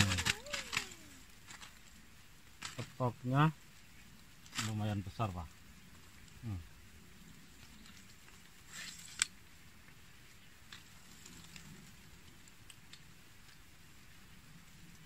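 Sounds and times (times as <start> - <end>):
short rustle: 0.0 - 2.0, 7.6 - 9.4
faint ticks: 9.1 - 15.0.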